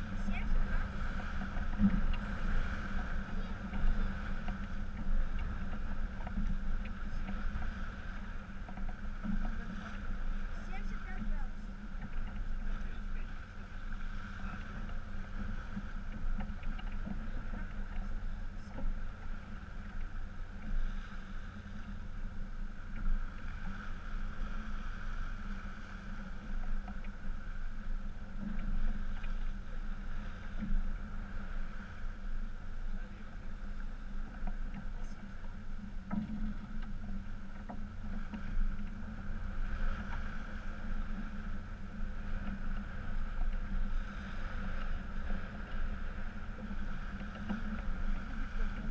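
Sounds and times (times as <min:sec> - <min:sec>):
water rushing along a hull: 0:00.0 - 0:48.9
wind buffeting the microphone: 0:00.0 - 0:48.9.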